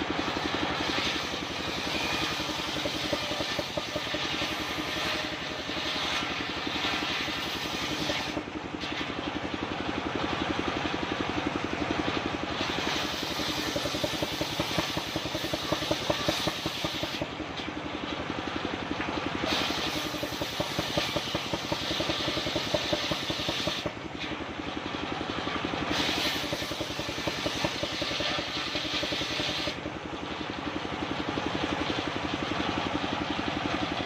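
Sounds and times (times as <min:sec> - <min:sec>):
circular saw engine running: 0:00.0 - 0:34.0
saw blade cutting wood: 0:00.2 - 0:09.0, 0:12.6 - 0:17.3, 0:19.4 - 0:24.0, 0:25.9 - 0:29.8.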